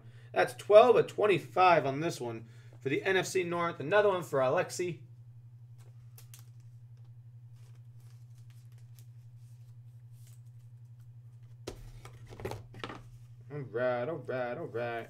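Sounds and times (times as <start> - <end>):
steady low hum: 0.0 - 15.0
plastic card sleeve handling: 5.8 - 13.3.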